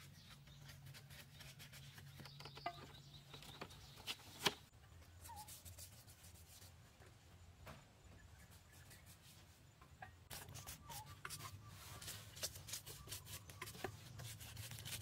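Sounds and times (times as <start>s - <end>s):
taps and knocks on bamboo and wood: 2.2s - 3.8s.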